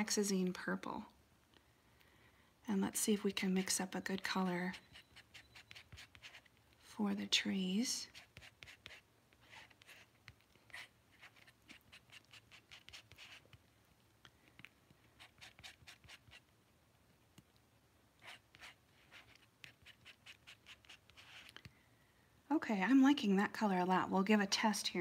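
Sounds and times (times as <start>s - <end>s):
palette knife scraping paint: 3.4s - 6.6s, 7.9s - 13.6s, 14.6s - 16.5s, 18.2s - 21.7s.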